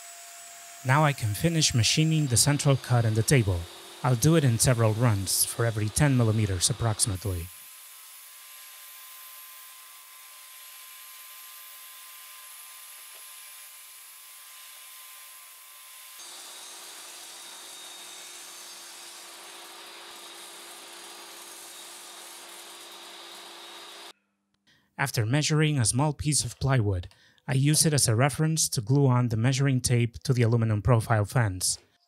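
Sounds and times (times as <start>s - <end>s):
table saw running: 0.0s - 24.1s.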